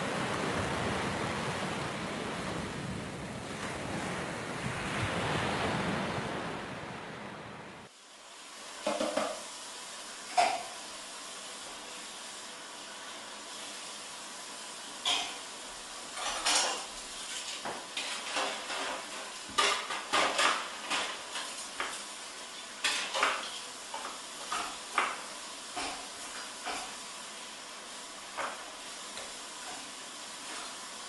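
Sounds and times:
steady hiss: 0:07.7 - 0:31.0
knife and utensils clattering: 0:16.2 - 0:21.6.

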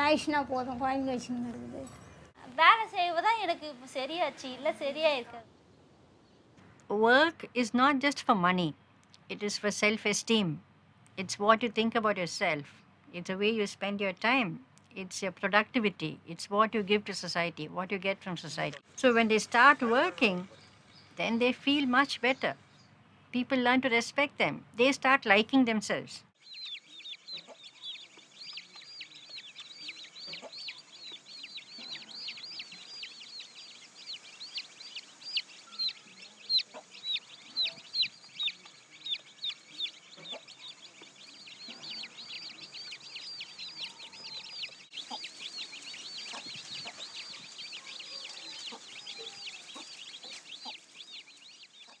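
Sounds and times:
chicks peeping: 0:26.4 - 0:52.0.

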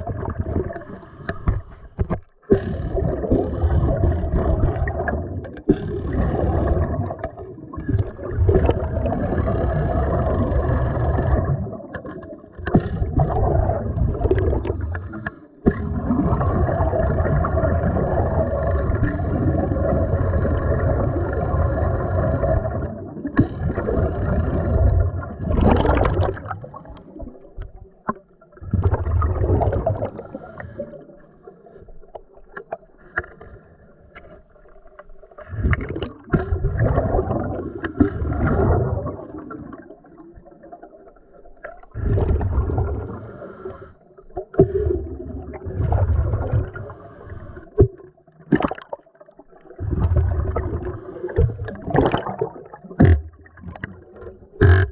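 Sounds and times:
pneumatic ratchet underwater: 0:05.6 - 0:07.3, 0:08.5 - 0:11.5, 0:12.6 - 0:13.4, 0:14.9 - 0:22.8, 0:23.4 - 0:25.0, 0:54.6 - 0:54.9
air bubbling out: 0:15.7 - 0:26.8, 0:28.7 - 0:30.3, 0:35.5 - 0:39.9, 0:41.9 - 0:43.2, 0:49.8 - 0:53.4.

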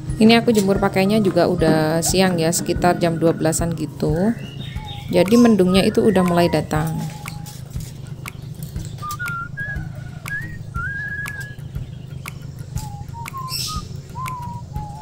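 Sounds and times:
person whistling a tune: 0:04.5 - 0:07.9, 0:09.0 - 0:11.6, 0:12.3 - 0:15.0.

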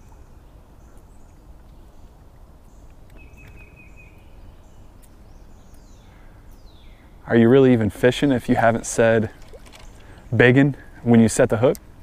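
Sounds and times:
bird trill: 0:03.1 - 0:07.1.

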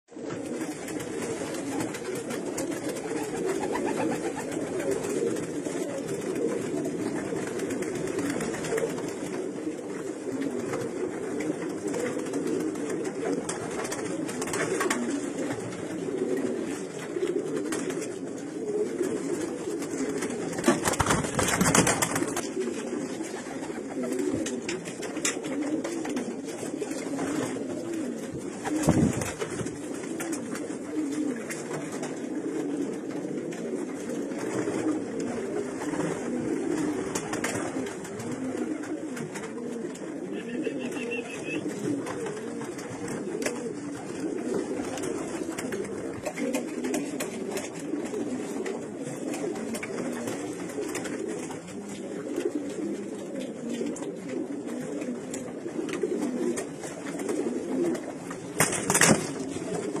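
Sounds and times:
pigeons cooing: 0:00.1 - 1:00.0.

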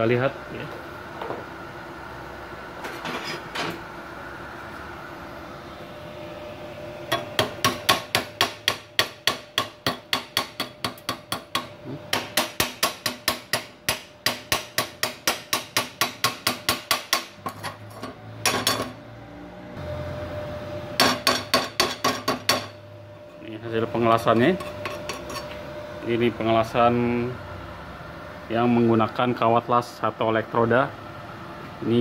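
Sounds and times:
hammer tapping on metal: 0:07.1 - 0:17.6, 0:21.0 - 0:22.8.

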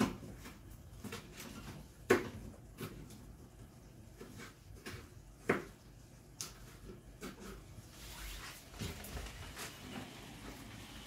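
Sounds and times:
knife chopping on cutting board: 0:00.0 - 0:03.2, 0:04.1 - 0:05.9.

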